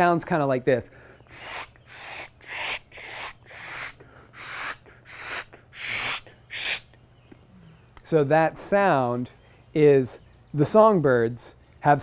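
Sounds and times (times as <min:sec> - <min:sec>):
person making hissed pishing bursts: 0:01.3 - 0:06.9.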